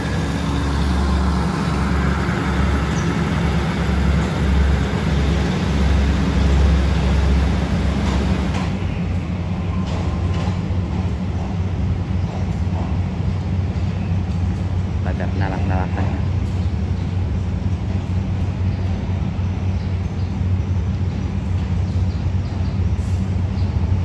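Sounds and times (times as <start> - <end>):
train wheels on rails: 0.0 - 15.0, 15.6 - 24.0
diesel train engine rumble: 0.0 - 24.0.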